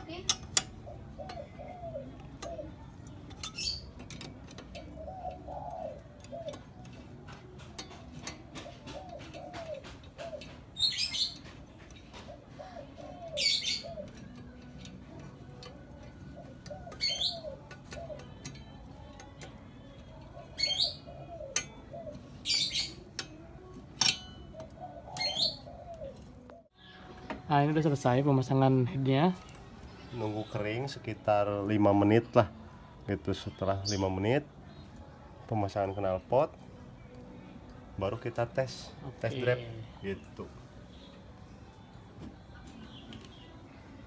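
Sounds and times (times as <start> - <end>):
dove cooing: 0.1 - 26.8
small bird chirping: 0.6 - 4.0, 8.8 - 27.0
hand tools clinking on metal: 2.2 - 25.6.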